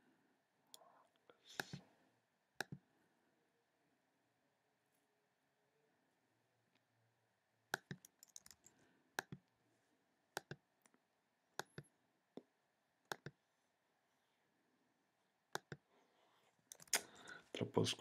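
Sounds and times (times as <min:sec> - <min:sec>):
computer mouse clicks: 0:01.5 - 0:01.8, 0:02.6 - 0:02.8, 0:07.7 - 0:09.4, 0:10.4 - 0:11.0, 0:13.1 - 0:13.4, 0:15.5 - 0:15.8, 0:16.7 - 0:17.1.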